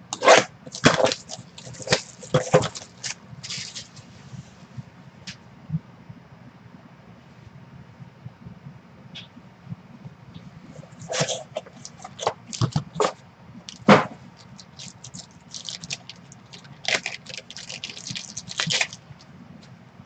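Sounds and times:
plastic wrapper crinkling and tearing: 0:00.2 - 0:04.0, 0:11.0 - 0:19.3.

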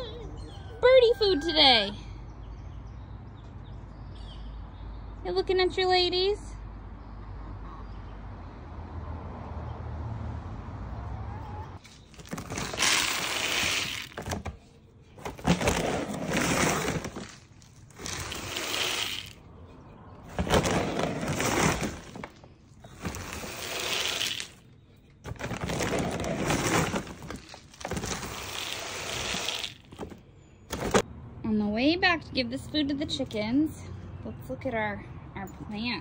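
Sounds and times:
feed pellets rattling into feeder: 0:12.1 - 0:14.4, 0:15.3 - 0:19.4, 0:23.0 - 0:24.6, 0:25.3 - 0:31.0.

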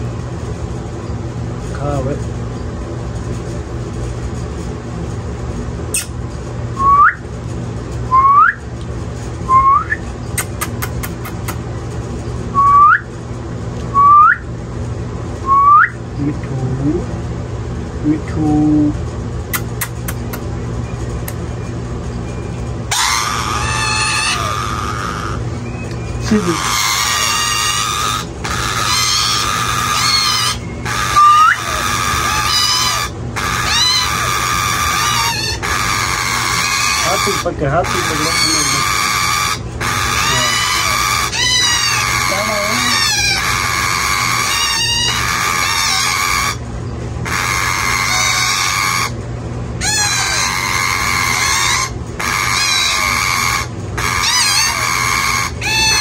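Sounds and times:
parakeet chick begging squeals: 0:22.4 - 0:49.2, 0:49.8 - 0:56.0.

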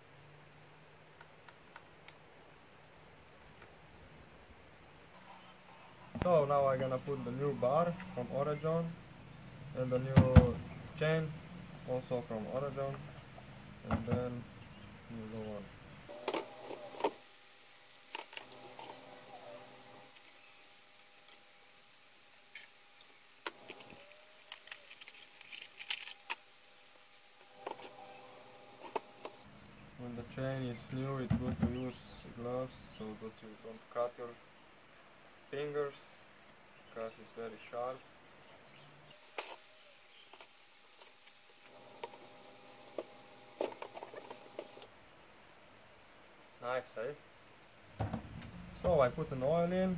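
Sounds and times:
saw chain clinking and rattling: 0:24.5 - 0:27.9.

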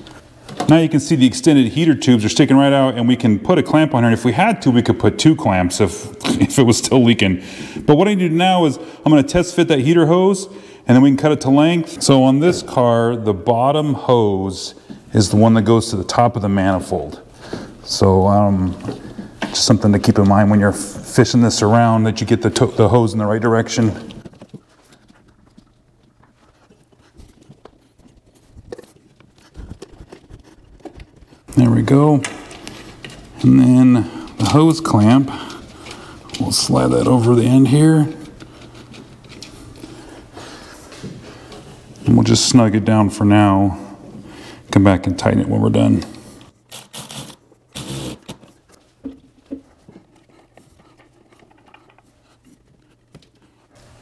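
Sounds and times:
rubber hose rubbing: 0:22.5 - 0:33.8, 0:46.2 - 0:54.0.

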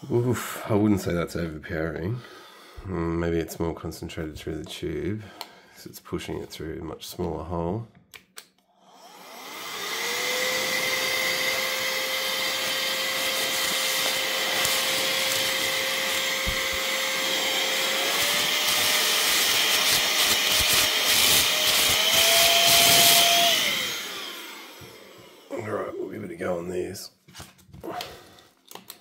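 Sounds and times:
air duster fan motor whine: 0:09.1 - 0:25.6.

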